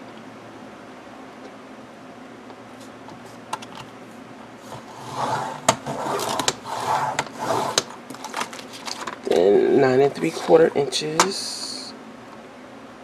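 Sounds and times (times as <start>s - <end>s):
blade scraping through plastic: 4.7s - 9.0s.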